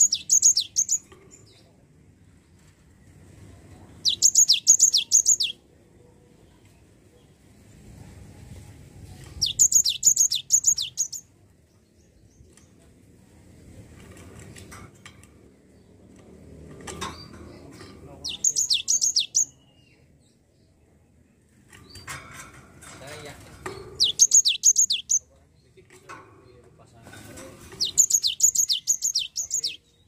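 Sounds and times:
bird singing sharp high notes: 0.0 - 1.0, 4.0 - 5.6, 9.4 - 11.2, 18.2 - 19.6, 24.0 - 25.2, 27.8 - 29.9.

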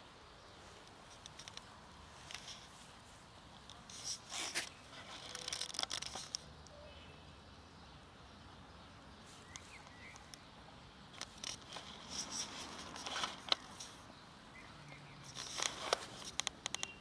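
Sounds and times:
light rustling and crackling: 0.4 - 6.5, 9.2 - 10.5, 11.1 - 14.2, 15.2 - 17.0.

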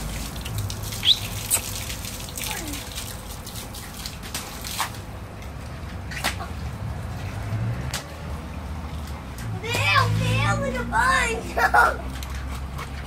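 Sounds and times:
water splashing on tiles: 0.0 - 10.4.

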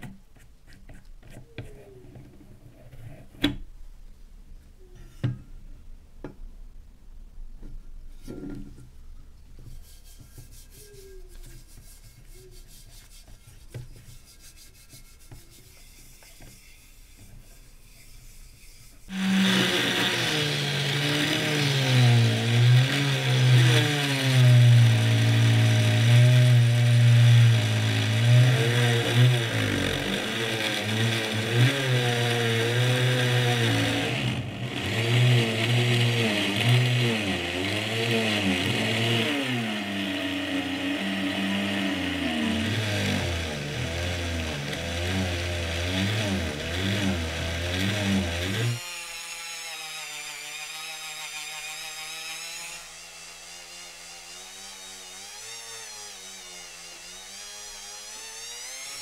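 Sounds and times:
soft taps and rubbing: 9.5 - 15.6
rotary polishing tool running: 18.6 - 49.3.

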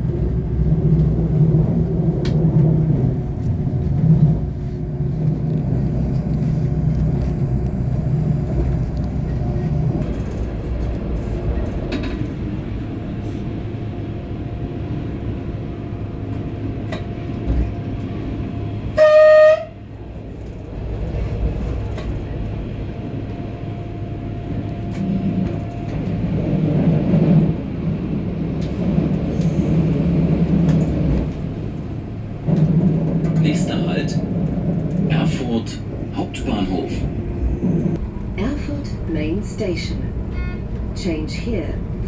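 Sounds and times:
train running gear rumble: 0.0 - 42.0
train horn blast: 18.9 - 19.9, 40.3 - 40.8.

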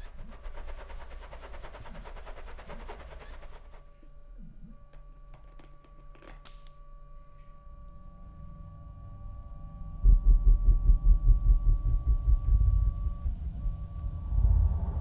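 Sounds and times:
pulsing low rumble: 8.2 - 15.0.

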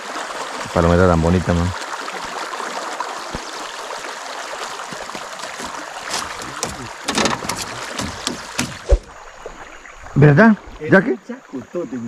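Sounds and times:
water splashing beside boat: 0.0 - 11.9
wind and water wash: 0.0 - 12.0
sharp knocks and clicks: 5.5 - 9.1.

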